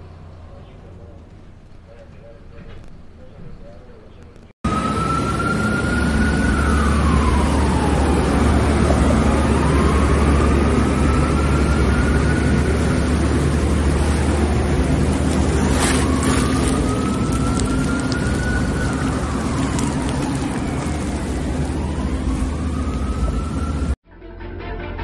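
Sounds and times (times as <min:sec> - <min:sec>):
distant siren wailing: 0:04.6 - 0:24.0
heavy rain: 0:04.7 - 0:24.0
traffic wading through water: 0:04.7 - 0:24.0
water splash: 0:13.6 - 0:23.4.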